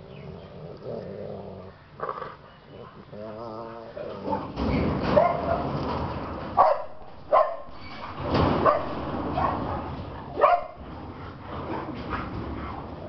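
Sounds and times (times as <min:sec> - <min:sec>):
dogs barking: 0:04.2 - 0:05.8, 0:06.5 - 0:07.8, 0:08.6 - 0:10.9.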